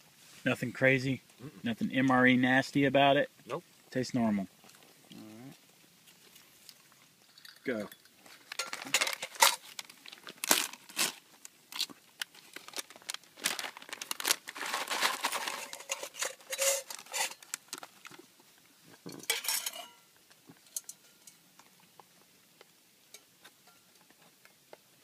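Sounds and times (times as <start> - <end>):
foil pouch crinkling: 8.3 - 18.3.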